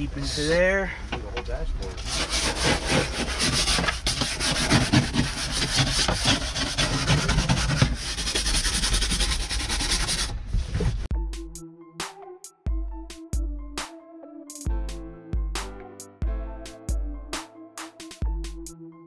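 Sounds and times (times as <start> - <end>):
brush scrubbing plastic: 2.0 - 10.4
towel rubbing plastic: 2.0 - 11.1.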